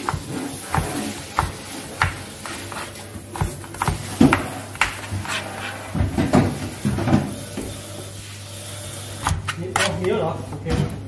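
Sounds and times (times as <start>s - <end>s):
knife chopping carrots on board: 0.0s - 5.4s, 9.2s - 10.2s.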